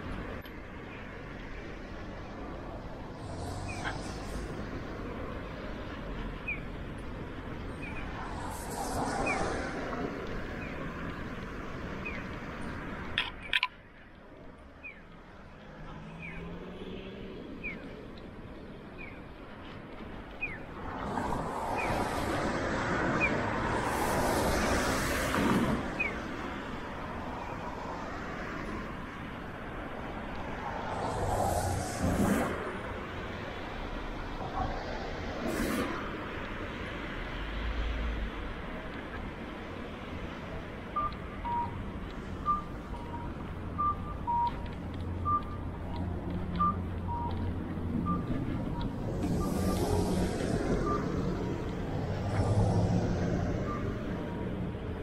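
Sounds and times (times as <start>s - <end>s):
low traffic rumble: 0.0s - 55.0s
vehicle passing by: 30.5s - 33.1s, 48.0s - 54.8s
two-tone electronic beeping: 40.9s - 51.6s.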